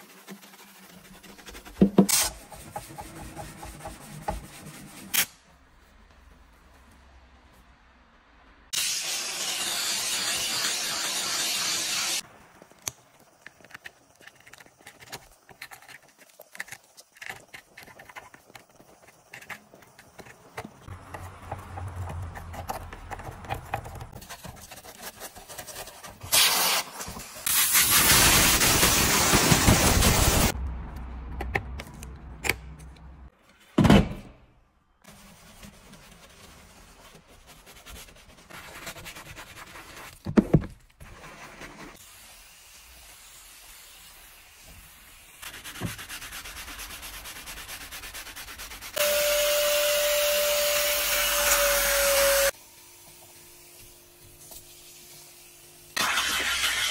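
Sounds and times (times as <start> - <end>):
faint brushing: 0.0 - 7.8, 35.1 - 40.2
steam cleaner hissing: 26.3 - 30.6, 53.3 - 56.9.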